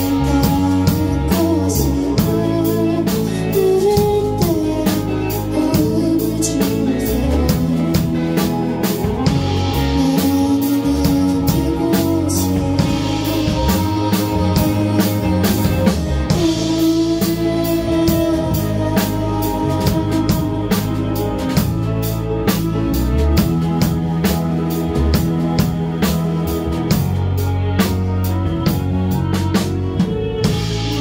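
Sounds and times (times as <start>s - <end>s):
woman singing: 0.0s - 22.8s, 30.5s - 31.0s
drum kit beat: 0.0s - 31.0s
electric guitar: 0.0s - 31.0s.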